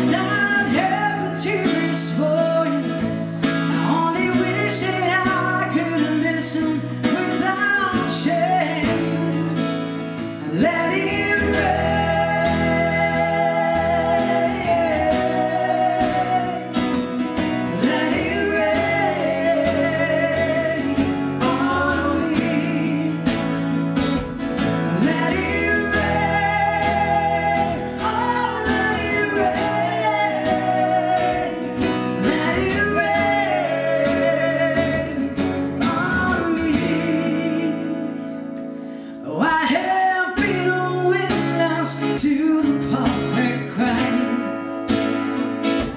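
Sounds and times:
woman singing into a microphone: 0:00.0 - 0:09.6, 0:10.4 - 0:16.9, 0:17.5 - 0:23.5, 0:24.9 - 0:38.5, 0:39.2 - 0:44.7
strummed acoustic guitar: 0:00.0 - 0:45.9.

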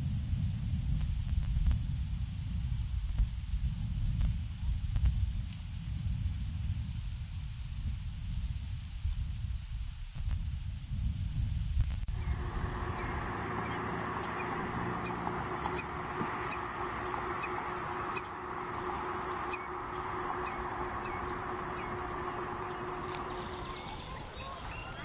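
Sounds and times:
faint hum: 0:00.0 - 0:25.0
chick peeping: 0:12.2 - 0:25.0.

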